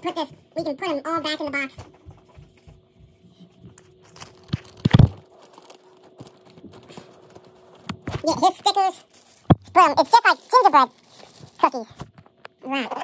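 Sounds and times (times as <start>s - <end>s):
cardboard packaging rustling: 3.7s - 12.4s.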